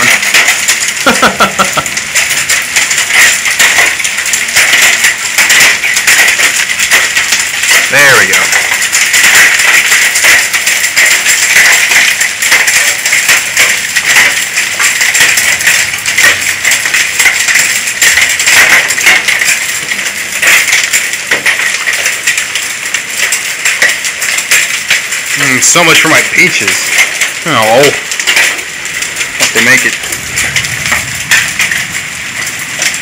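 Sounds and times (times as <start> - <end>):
hail and rain clattering: 0.0 - 33.0.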